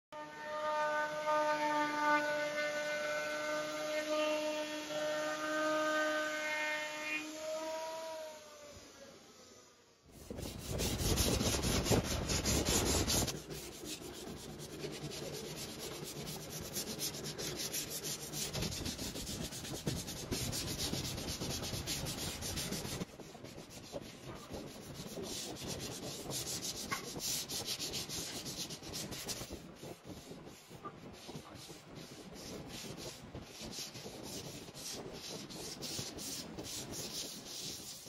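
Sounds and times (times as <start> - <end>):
pad scrubbing wood: 10.1 - 38.0.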